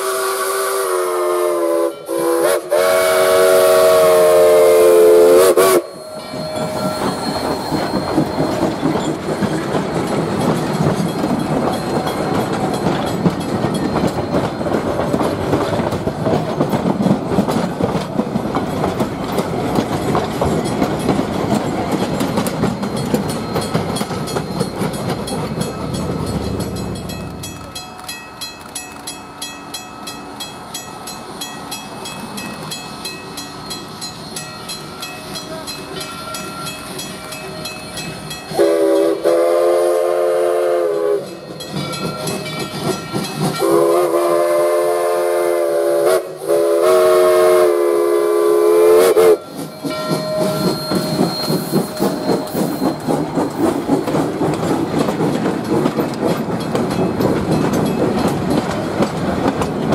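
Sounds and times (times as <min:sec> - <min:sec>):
steam locomotive whistle: 0:00.0 - 0:08.6, 0:38.5 - 0:41.4, 0:43.6 - 0:53.2
train wheels clattering over rails: 0:06.2 - 0:59.9.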